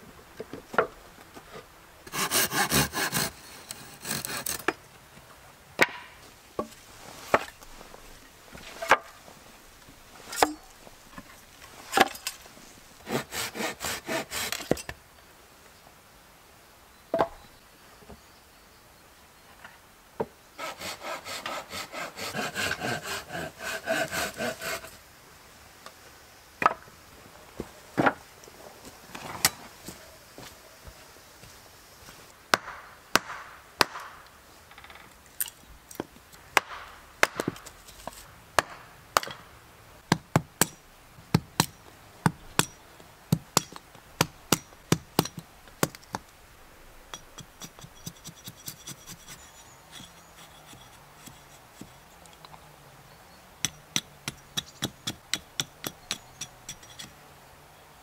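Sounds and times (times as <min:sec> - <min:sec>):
hatchet splitting wood: 0:02.1 - 0:04.8, 0:05.8 - 0:06.2, 0:13.1 - 0:14.9, 0:20.6 - 0:24.9, 0:32.5 - 0:34.2, 0:36.6 - 0:37.7, 0:38.6 - 0:39.4, 0:40.1 - 0:40.8, 0:41.4 - 0:46.2, 0:53.6 - 0:57.2.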